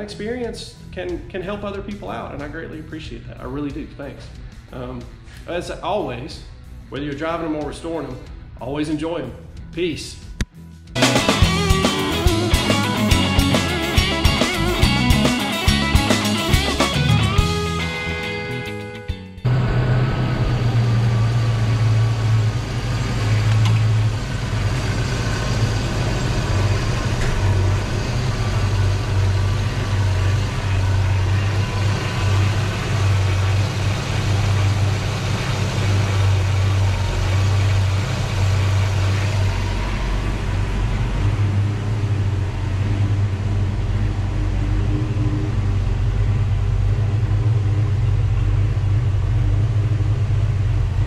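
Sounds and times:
car engine idling: 10.9s - 51.0s.

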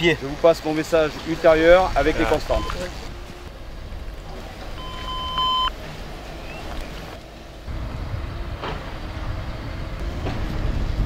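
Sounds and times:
short electronic beep: 2.5s - 2.8s, 4.8s - 5.7s.

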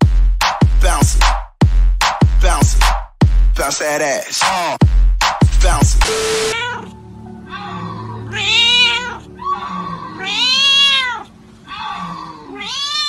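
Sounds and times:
cat meowing: 6.5s - 13.0s.

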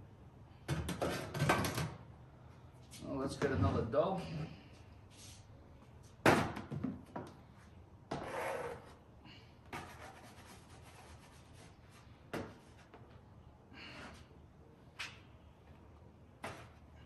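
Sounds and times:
dough rubbing and scraping: 9.8s - 12.9s.

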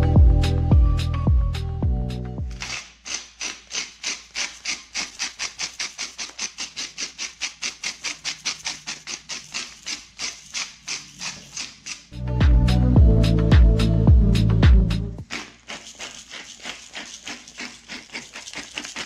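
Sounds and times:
music: 0.0s - 2.6s, 12.2s - 15.2s
salt grinder crunching: 2.5s - 12.2s, 15.2s - 19.0s.

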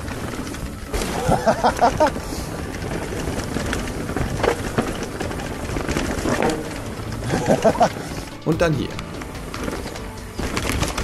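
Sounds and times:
tyres rolling over rocks: 0.0s - 11.0s.

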